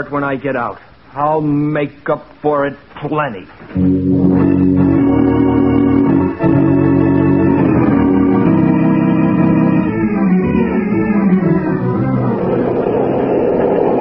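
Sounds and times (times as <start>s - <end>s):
sustained organ chords: 3.7s - 14.0s.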